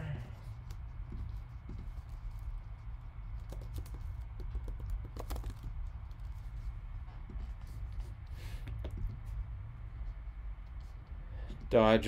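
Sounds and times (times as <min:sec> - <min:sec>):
low steady hum: 0:00.0 - 0:12.0
computer keyboard typing: 0:03.3 - 0:06.3.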